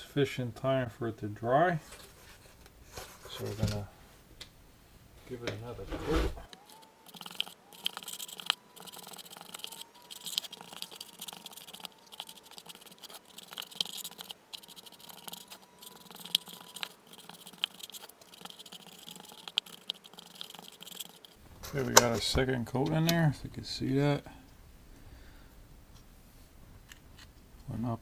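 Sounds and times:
scratchy brush strokes: 5.9 - 21.8.

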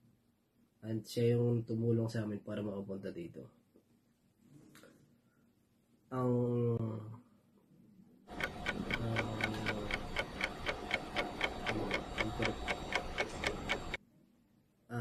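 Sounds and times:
clock ticking: 8.3 - 14.0.

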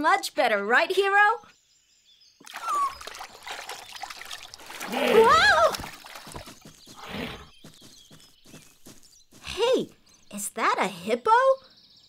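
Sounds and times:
water splashing and trickling: 2.4 - 7.0
child crying out: 5.1 - 5.8.

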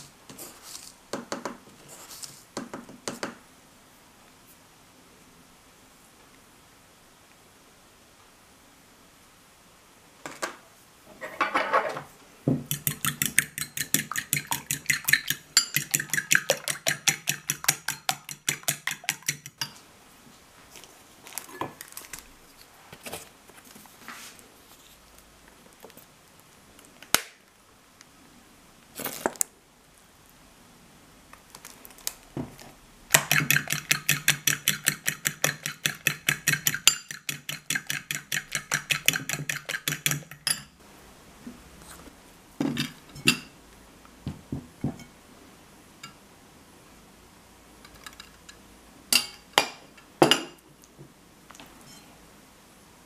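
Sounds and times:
fork beating egg in bowl: 12.7 - 19.8, 33.1 - 40.7.

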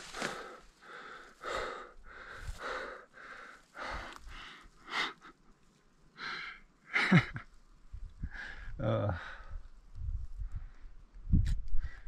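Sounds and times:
man breathing hard: 0.0 - 5.4, 6.2 - 6.7, 8.2 - 9.7.

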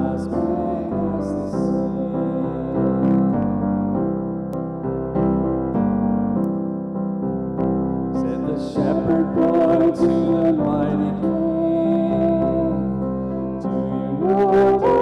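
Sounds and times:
person singing long notes: 0.0 - 3.6, 8.2 - 15.0
electric piano chords: 0.0 - 15.0.

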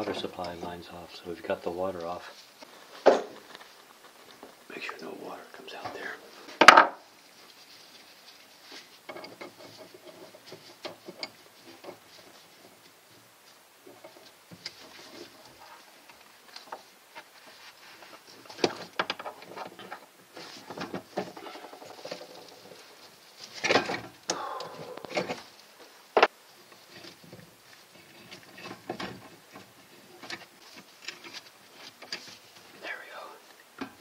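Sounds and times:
hands handling plumbing tools: 17.4 - 32.7.

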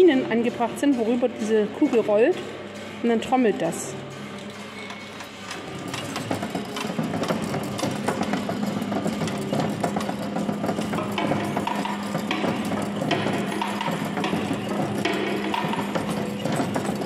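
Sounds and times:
ball rolling over rails clattering: 4.4 - 17.0.

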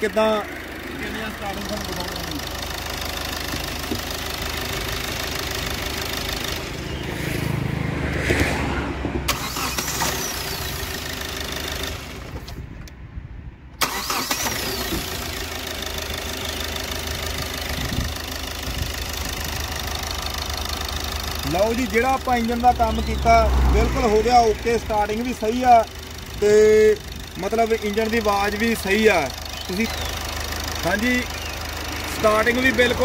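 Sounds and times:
diesel engine idling: 0.0 - 7.8, 9.2 - 12.8, 13.8 - 33.0
engine starting: 9.3 - 12.6, 13.8 - 15.5.

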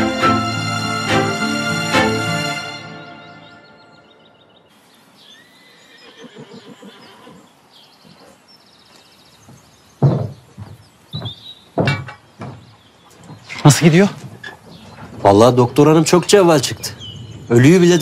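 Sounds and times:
small birds chirping: 3.4 - 18.0
horse whinnying: 5.4 - 7.5
loud short thumps: 10.0 - 12.7.

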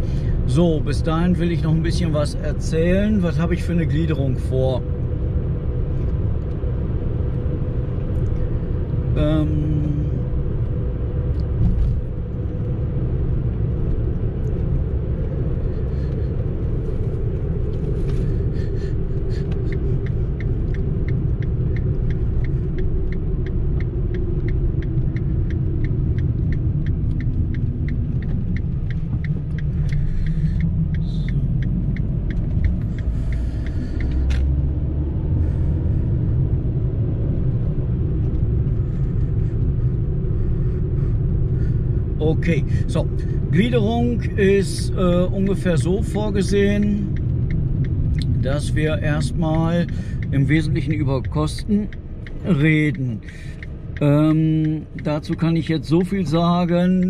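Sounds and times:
car engine and road rumble: 0.0 - 57.0
regular ticking: 17.2 - 34.9, 39.6 - 57.0.

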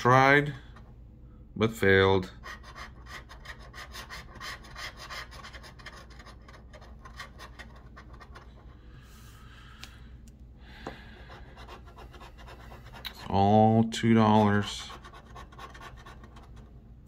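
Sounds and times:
scratching tool scraping ticket: 2.3 - 8.8, 11.2 - 13.4, 14.2 - 16.7.

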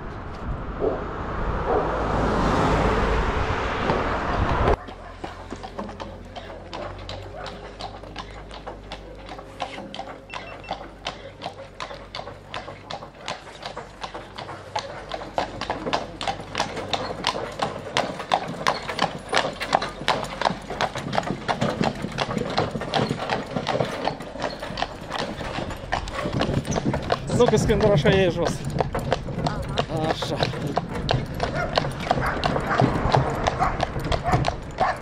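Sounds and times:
low engine hum: 0.0 - 13.1
hooves clip-clopping on road: 3.8 - 35.0.

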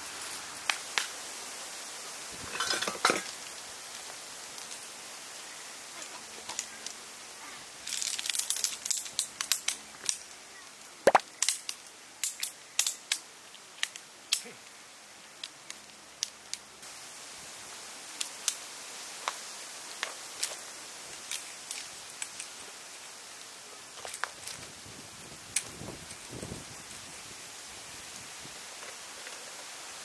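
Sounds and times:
camp gear clicking and snapping: 7.8 - 10.2, 11.1 - 13.2.

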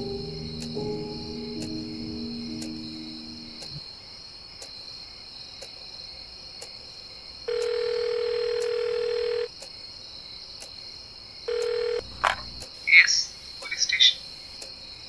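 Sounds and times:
faint ticking: 0.0 - 3.8
sustained music notes: 0.0 - 3.8
crickets chirring: 0.0 - 15.0
phone ringback tone: 7.5 - 9.5, 11.5 - 12.1.

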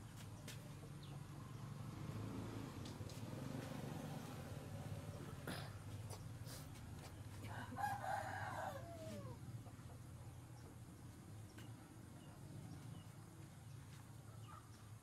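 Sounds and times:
rooster crowing: 7.5 - 9.5.

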